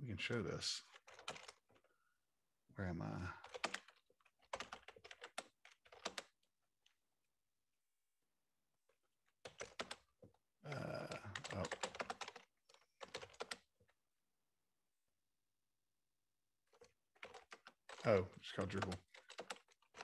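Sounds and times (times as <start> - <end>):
computer keyboard typing: 0.9 - 1.8, 3.4 - 6.4, 9.4 - 10.1, 10.7 - 13.7, 16.7 - 20.0.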